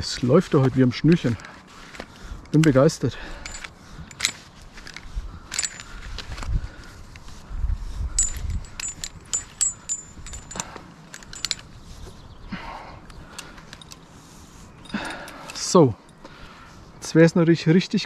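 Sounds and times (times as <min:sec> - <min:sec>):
metal climbing hardware clinking: 0:00.6 - 0:07.2, 0:08.1 - 0:12.2, 0:13.0 - 0:14.1, 0:14.7 - 0:16.4
low rumble of handling: 0:08.0 - 0:12.4
faint rustling: 0:08.1 - 0:12.4.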